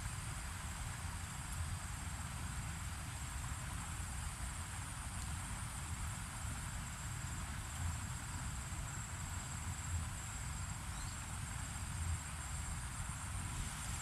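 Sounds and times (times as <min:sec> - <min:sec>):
insects trilling: 0:10.9 - 0:11.2.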